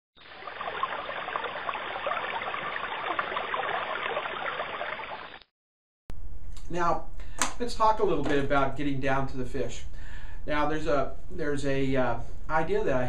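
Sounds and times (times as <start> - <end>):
stream babbling over rocks: 0.2 - 5.3.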